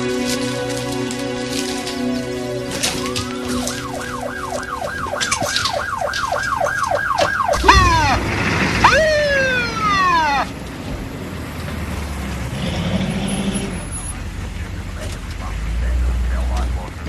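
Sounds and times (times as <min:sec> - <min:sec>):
ambulance siren yelping: 0:00.0 - 0:10.7
vehicle engine: 0:00.0 - 0:17.0.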